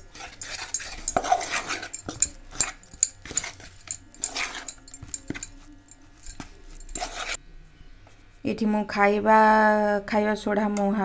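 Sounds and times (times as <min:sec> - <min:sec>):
spoon scraping steel bowl: 0:00.0 - 0:07.4.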